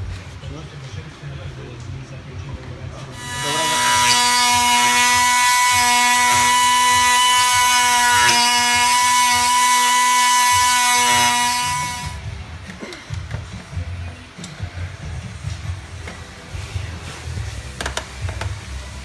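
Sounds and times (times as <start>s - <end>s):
electric power tool whining: 3.2s - 12.8s.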